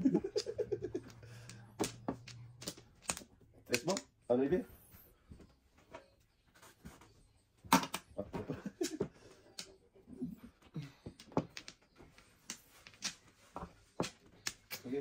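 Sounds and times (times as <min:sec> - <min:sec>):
mahjong tiles clicking: 0:00.1 - 0:04.2, 0:11.0 - 0:15.0.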